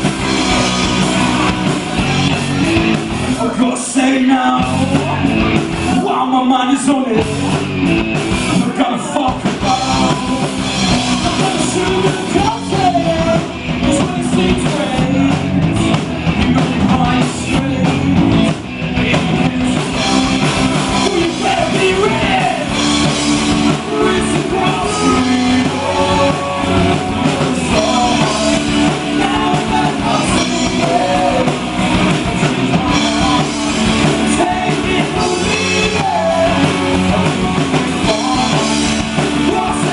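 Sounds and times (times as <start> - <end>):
lead singer singing: 0.0 - 7.8, 8.4 - 39.9
drums: 0.0 - 39.9
electric guitar: 0.0 - 39.9.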